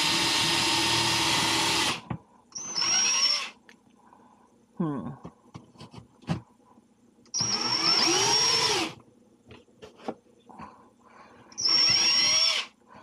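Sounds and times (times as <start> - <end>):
cordless drill motor: 0.0 - 2.0, 2.6 - 3.6, 7.3 - 9.0, 11.6 - 12.8.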